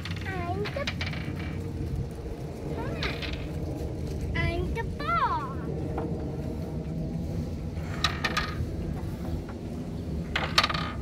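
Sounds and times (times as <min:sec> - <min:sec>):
spinner wheel clicking rattle: 0:00.0 - 0:05.1.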